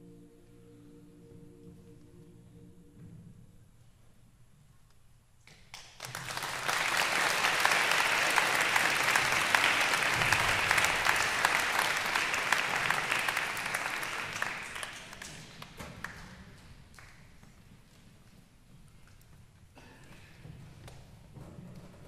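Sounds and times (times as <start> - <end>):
audience applauding: 5.7 - 17.2.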